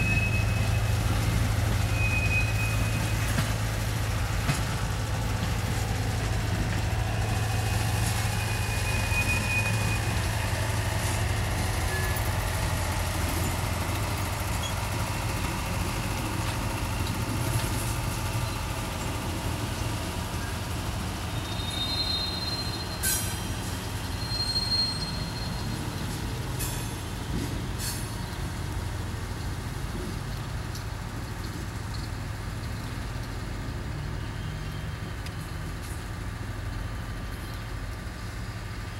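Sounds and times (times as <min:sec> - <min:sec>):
high-pitched wheel squeals: 0:00.0 - 0:03.6, 0:06.8 - 0:12.5, 0:21.3 - 0:26.9
train wheels rumbling: 0:00.0 - 0:38.9.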